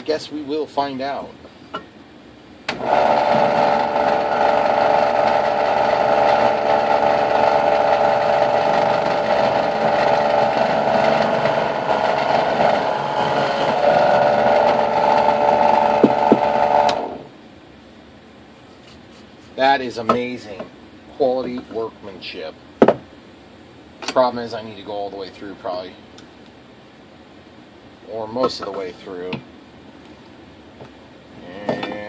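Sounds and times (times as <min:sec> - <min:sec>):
drill press motor running: 0:02.7 - 0:17.3.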